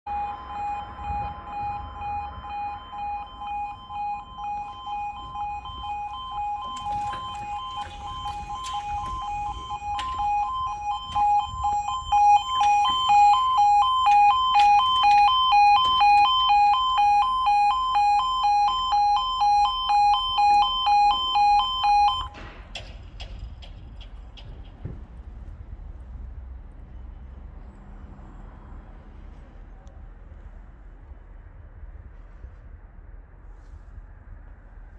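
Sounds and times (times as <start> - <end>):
two-tone crossing alarm: 0.1 - 22.4
clicks and knocks: 6.6 - 16.6, 22.3 - 25.2.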